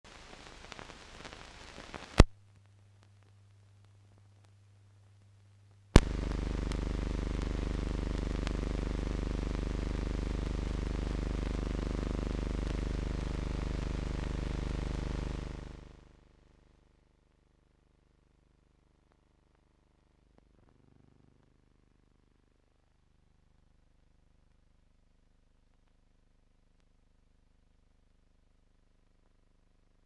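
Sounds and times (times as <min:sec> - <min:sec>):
electrical mains hum: 0:00.1 - 0:23.9
light crackle: 0:00.1 - 0:30.0.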